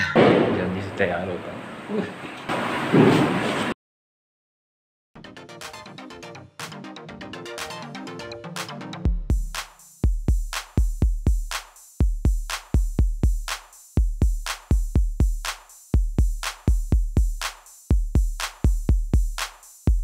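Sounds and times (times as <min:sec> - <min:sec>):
electronic beat with kick drum: 0:05.5 - 0:20.0.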